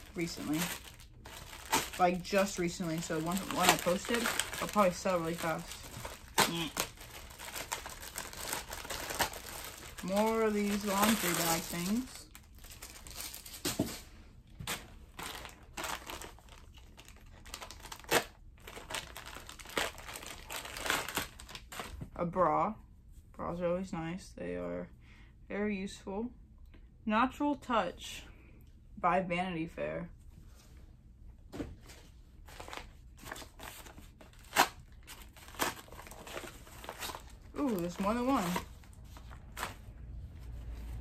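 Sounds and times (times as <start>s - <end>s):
paper envelope tearing: 0.0s - 12.1s
plastic mailer bag crinkling: 0.0s - 14.0s, 14.6s - 22.0s, 32.4s - 39.9s.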